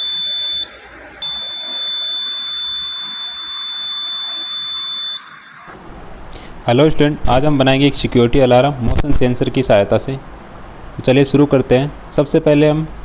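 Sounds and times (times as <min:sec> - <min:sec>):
high-pitched buzzer tone: 0:00.0 - 0:05.7.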